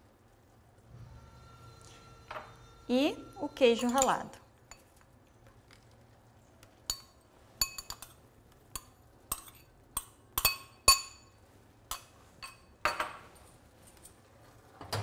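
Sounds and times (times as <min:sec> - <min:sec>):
spoon scraping: 0:01.7 - 0:06.1, 0:06.7 - 0:12.7
metal spoon clinking on bowl: 0:03.7 - 0:05.0, 0:06.9 - 0:08.2, 0:08.8 - 0:13.1.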